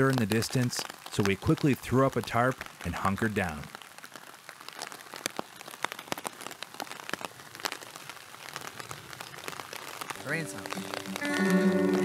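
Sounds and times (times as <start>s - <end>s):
rain on a plastic tarp: 0.0s - 12.0s.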